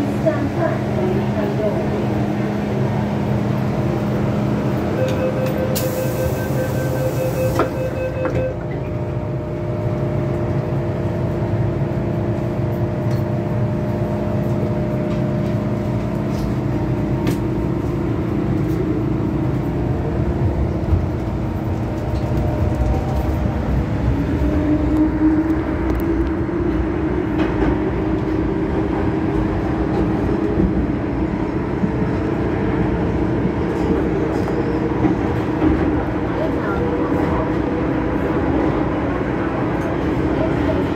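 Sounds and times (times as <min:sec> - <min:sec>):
rumble of wheels on track: 0:00.0 - 0:40.9.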